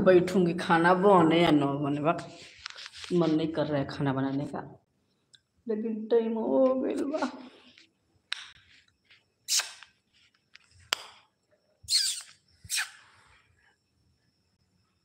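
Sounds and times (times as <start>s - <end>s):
mouth click: 9.5s - 9.9s, 11.9s - 13.0s.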